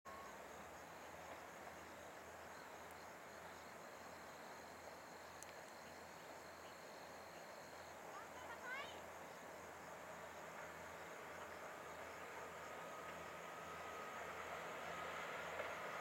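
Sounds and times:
faint tick: 0:05.4 - 0:05.8.

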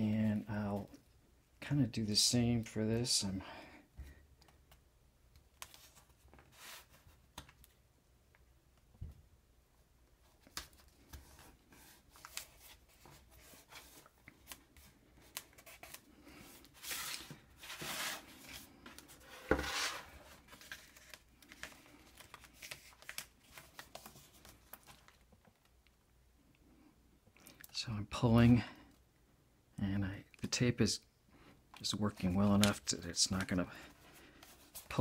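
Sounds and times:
board scraping on wooden table: 0:16.8 - 0:18.3, 0:19.2 - 0:20.2.

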